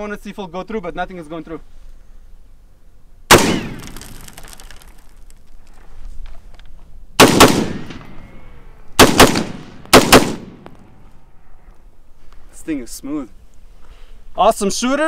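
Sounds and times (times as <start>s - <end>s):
rifle shots echoing: 3.3s - 4.6s, 7.2s - 11.0s.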